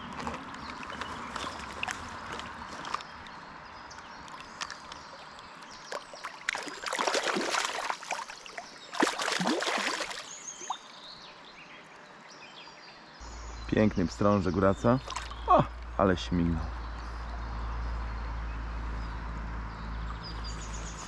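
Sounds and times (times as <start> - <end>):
water splashing: 0.2 - 3.4, 4.2 - 10.9, 14.6 - 16.0.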